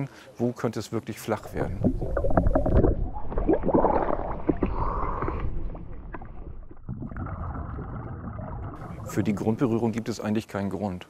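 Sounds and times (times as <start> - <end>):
water gurgling underwater: 1.4 - 10.1.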